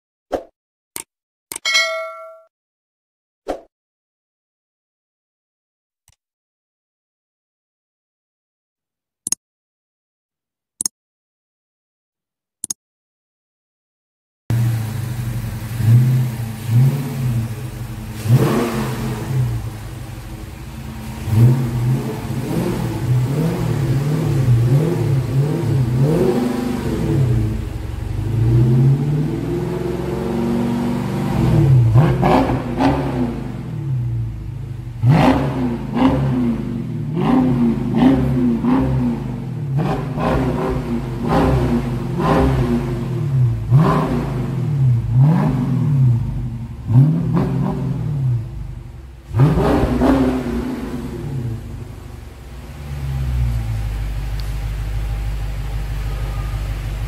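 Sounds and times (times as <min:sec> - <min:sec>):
car engine revving: 0:14.5 - 0:57.0.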